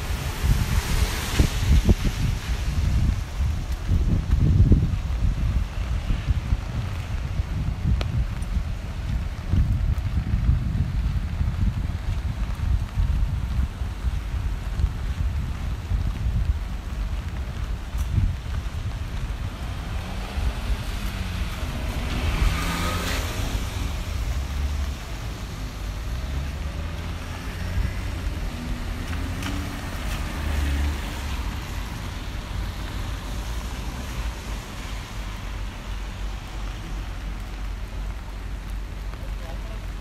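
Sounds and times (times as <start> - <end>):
cars on wet road: 0.0 - 40.0
wind rumbling on microphone: 0.0 - 40.0
vehicle passing: 19.5 - 37.0.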